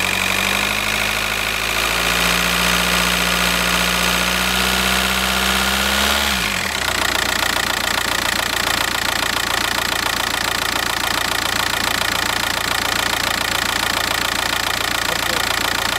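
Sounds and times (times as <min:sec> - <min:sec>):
diesel engine idling: 0:03.3 - 0:15.9.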